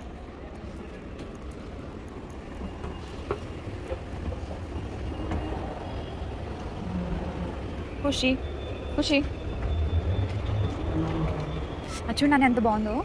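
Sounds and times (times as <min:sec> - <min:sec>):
low vehicle rumble: 0:09.0 - 0:13.0.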